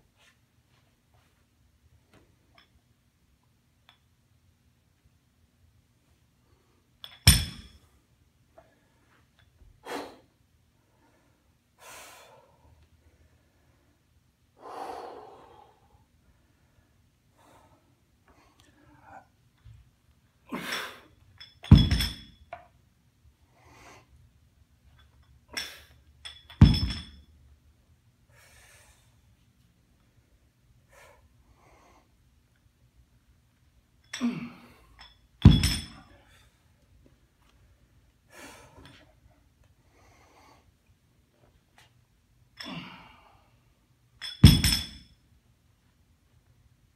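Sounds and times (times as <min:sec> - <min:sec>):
metallic clank with ring: 0:07.0 - 0:07.8, 0:21.4 - 0:22.6, 0:25.6 - 0:27.4, 0:35.0 - 0:36.1, 0:44.2 - 0:45.2
person breathing: 0:14.6 - 0:19.3
sledgehammer thud on rubber floor: 0:21.7 - 0:22.3, 0:26.6 - 0:27.1, 0:35.4 - 0:36.0, 0:44.4 - 0:45.0.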